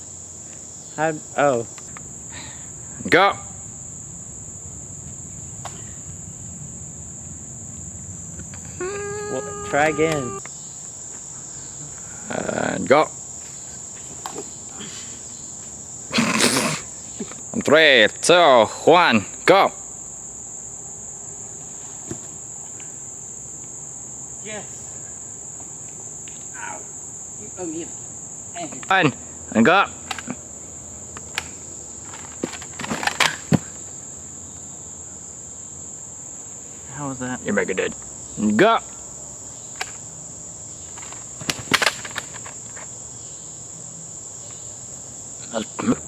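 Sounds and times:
insects droning: 0.0s - 46.0s
short falling call: 8.7s - 10.4s.

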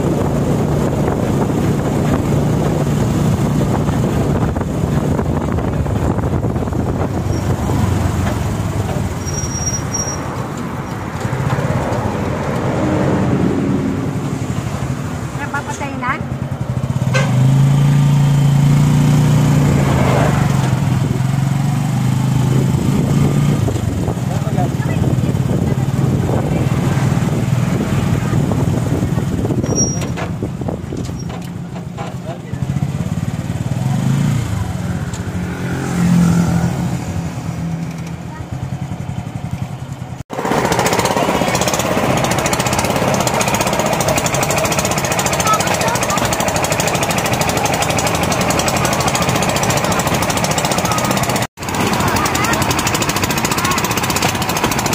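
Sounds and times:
wind on microphone: 0.0s - 9.2s, 22.3s - 31.2s
motorcycle engine running: 0.0s - 54.9s
brief high squeak: 9.1s - 10.4s, 29.6s - 30.2s.

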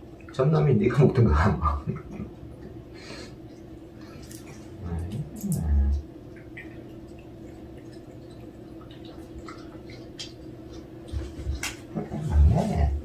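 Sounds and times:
steady low hum: 0.0s - 13.0s
cat licking wet smacks: 6.4s - 11.7s.

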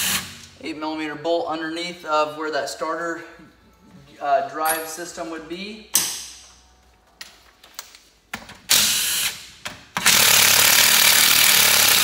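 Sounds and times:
cordless driver running: 10.0s - 12.0s.

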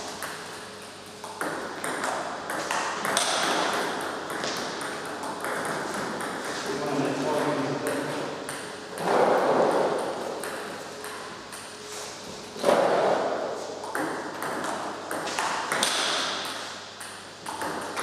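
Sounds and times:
table tennis ball clicking: 13.8s - 18.0s.

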